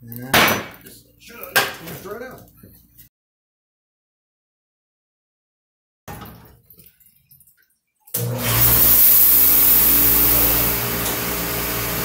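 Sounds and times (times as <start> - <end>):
water spraying hiss: 8.5 - 11.9.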